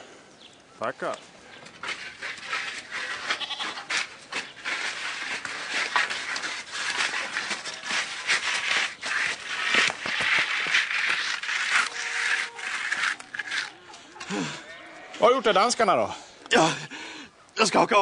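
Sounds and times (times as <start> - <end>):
goat bleating: 3.0 - 3.9, 11.9 - 12.8.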